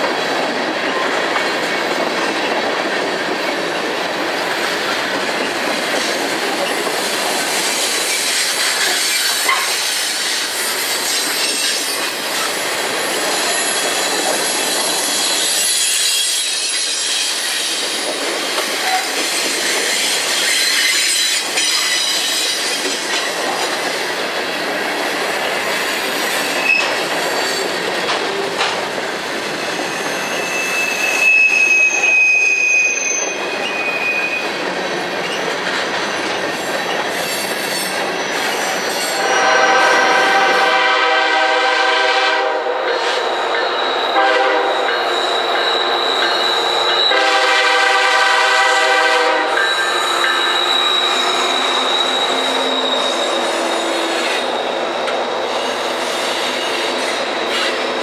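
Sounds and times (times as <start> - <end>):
high-pitched wheel squeal: 13.0 - 18.0, 29.6 - 34.6, 43.5 - 47.3, 49.5 - 57.8
locomotive horn blasts: 39.2 - 42.9, 44.1 - 45.1, 47.0 - 49.7.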